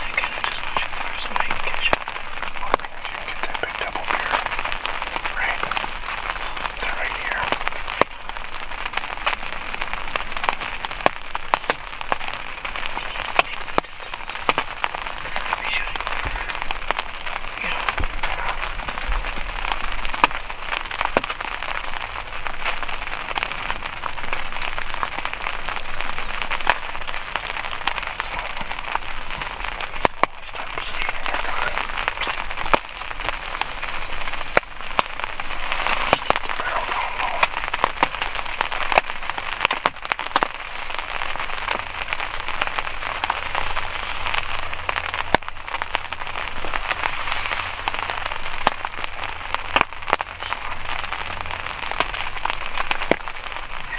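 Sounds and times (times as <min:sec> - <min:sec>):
raindrops ticking on a surface: 0:00.0 - 0:53.9.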